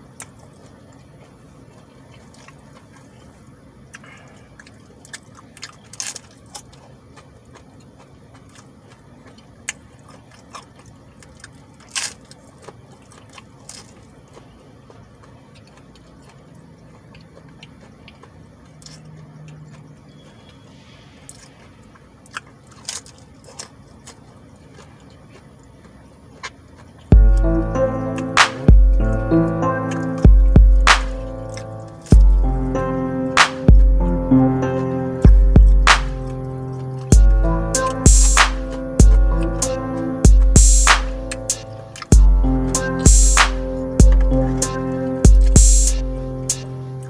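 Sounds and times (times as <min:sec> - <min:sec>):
man chewing food: 0:00.0 - 0:47.0
quiet steady hum: 0:00.0 - 0:47.0
loud music: 0:27.1 - 0:47.0.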